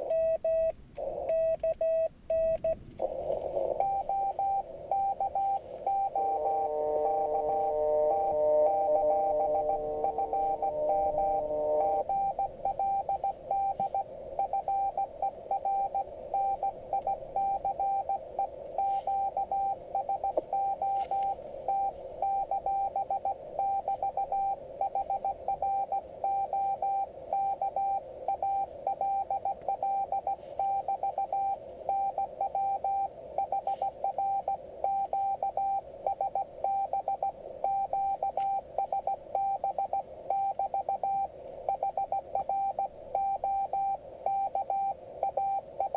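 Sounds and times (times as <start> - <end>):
morse code beeps: 0.0 - 45.9
radio hiss: 2.3 - 45.9.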